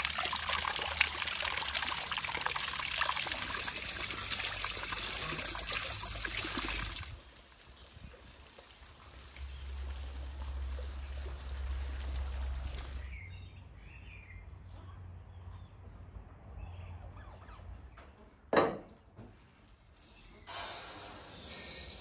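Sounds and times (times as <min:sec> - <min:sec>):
water trickling: 0:00.0 - 0:13.1
faint birdsong: 0:12.8 - 0:18.4.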